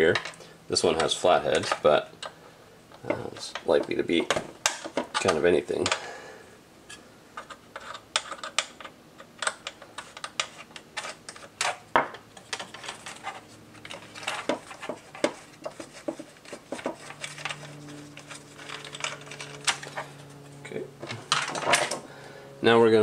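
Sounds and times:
plastic parts clicking and rattling: 0:01.0 - 0:02.3, 0:02.9 - 0:06.0, 0:07.4 - 0:20.2, 0:21.0 - 0:22.0.

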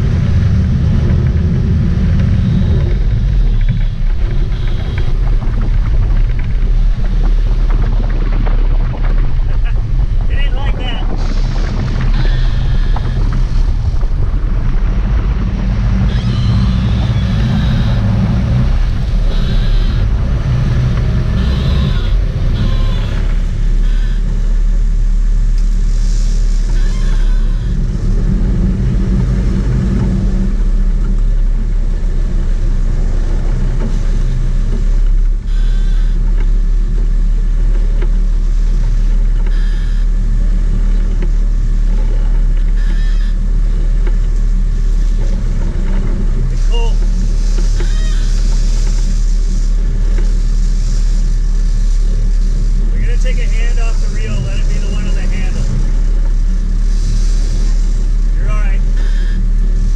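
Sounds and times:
boat engines rumbling: 0:00.0 - 0:59.9
rushing wind and water: 0:00.0 - 0:59.9.

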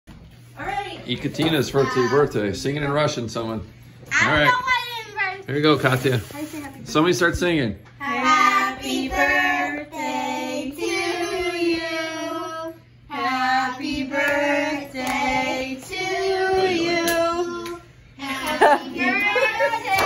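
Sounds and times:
girls singing together: 0:08.0 - 0:20.0.

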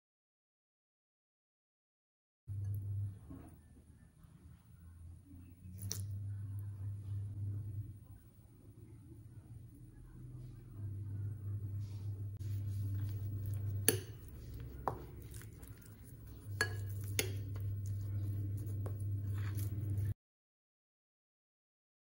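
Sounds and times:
low steady hum: 0:02.5 - 0:20.2
spoon scraping in bowl: 0:12.4 - 0:20.1
spoon clinking against glass: 0:16.4 - 0:17.5.

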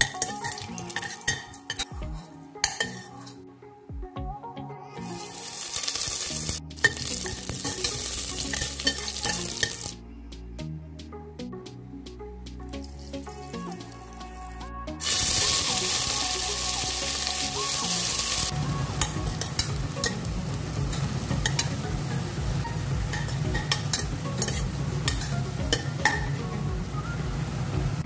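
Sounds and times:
metal spoon scraping pot: 0:02.7 - 0:03.4, 0:23.1 - 0:26.3
onions sizzling in hot oil: 0:05.3 - 0:10.0, 0:15.0 - 0:26.4.

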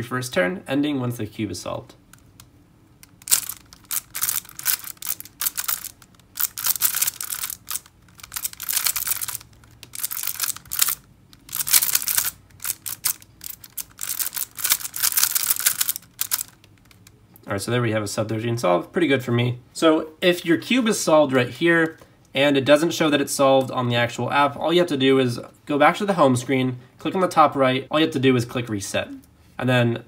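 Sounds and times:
puzzle cube plastic clicking: 0:02.1 - 0:17.2.

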